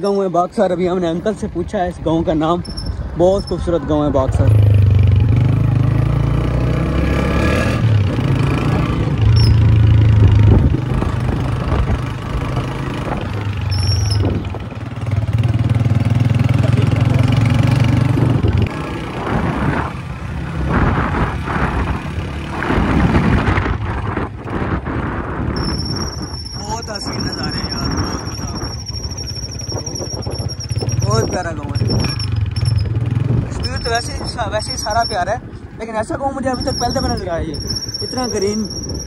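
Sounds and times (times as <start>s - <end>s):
rattling road noise: 0.0s - 39.0s
wind and road noise: 0.0s - 39.0s
brief high squeaks: 2.6s - 3.6s, 9.3s - 9.7s, 13.7s - 14.3s, 25.6s - 31.2s, 36.6s - 39.0s
motorcycle engine running: 7.8s - 35.2s.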